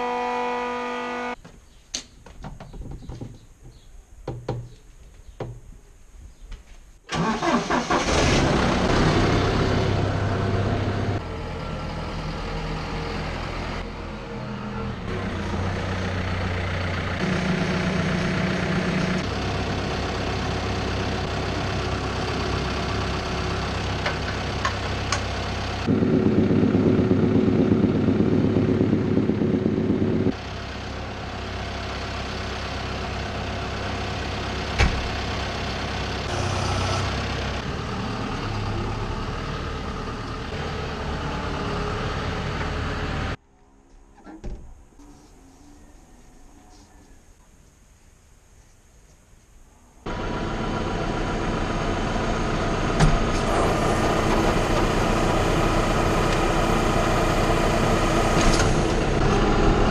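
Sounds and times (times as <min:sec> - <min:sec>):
tractor diesel engine idling: 0:07.1 - 0:43.4, 0:50.1 - 0:59.9.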